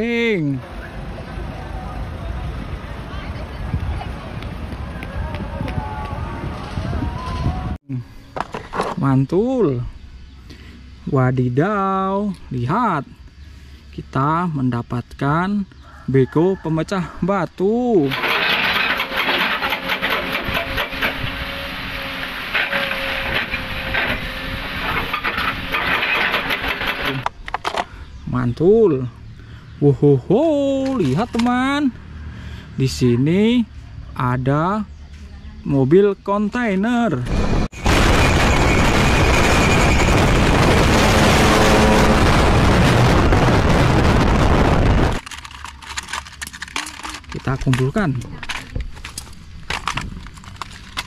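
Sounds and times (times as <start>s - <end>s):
wind and road noise: 0.0s - 51.0s
diesel engine running: 18.1s - 27.3s, 37.2s - 45.2s
hydraulic breaker hammering rock: 18.1s - 27.3s
toy boxes clicking and rustling: 45.1s - 51.0s.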